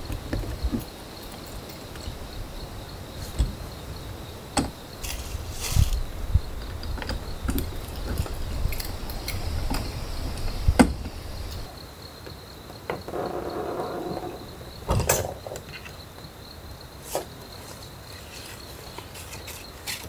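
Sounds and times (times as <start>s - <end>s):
camping gear knocks and clicks: 0.0s - 2.2s, 3.1s - 3.8s, 4.5s - 13.6s, 14.2s - 16.0s
crickets droning: 0.0s - 20.0s.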